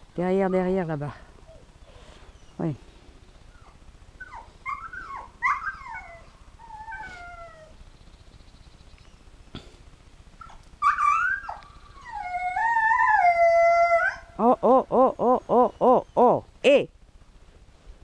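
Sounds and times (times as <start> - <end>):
dog whining and yelping: 3.5 - 7.8, 10.4 - 14.3
dog howling: 3.6 - 7.8, 10.4 - 14.4.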